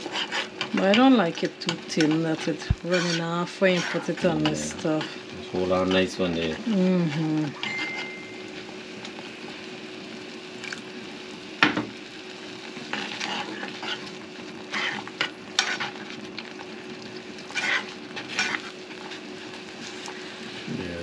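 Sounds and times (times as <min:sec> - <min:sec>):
sauce sizzling: 0:00.0 - 0:21.0
metal spoon scraping saucepan: 0:02.9 - 0:05.0, 0:17.5 - 0:18.7.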